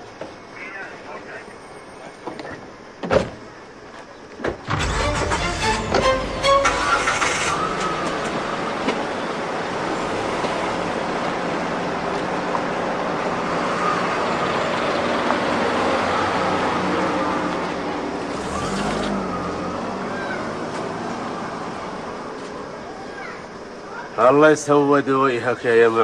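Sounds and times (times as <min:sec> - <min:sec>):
car engine driving by: 0:04.7 - 0:22.7.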